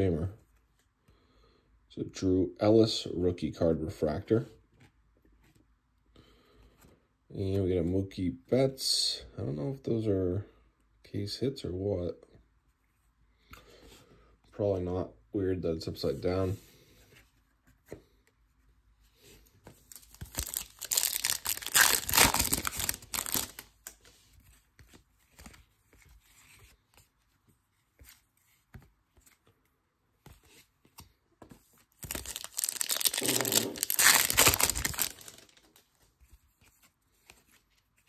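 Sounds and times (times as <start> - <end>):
foil wrapper tearing and crinkling: 19.9 - 24.0, 32.0 - 35.8.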